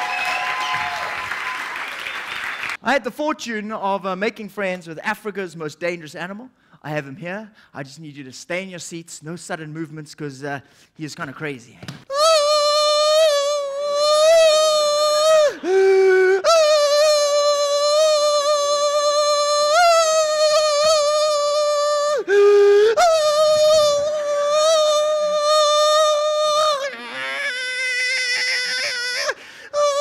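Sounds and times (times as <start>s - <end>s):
man imitating mosquito whine: 12.1s - 30.0s.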